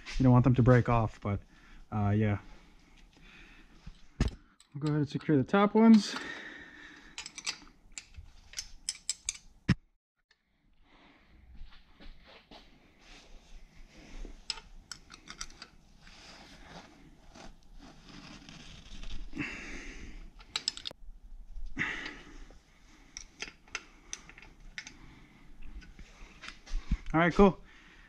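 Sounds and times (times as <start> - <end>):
metallic clicks of hand tool: 7.2 - 9.5, 20.4 - 21.0.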